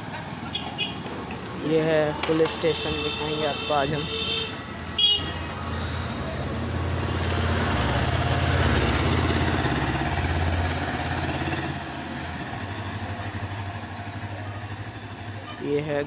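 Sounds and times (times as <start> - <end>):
truck engine passing: 0.0 - 16.0.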